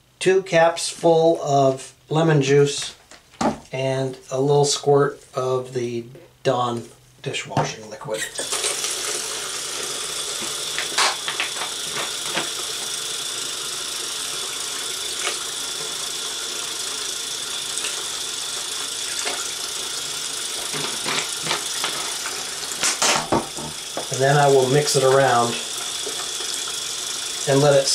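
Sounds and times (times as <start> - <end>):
faucet water running into tub: 8.3 - 27.9.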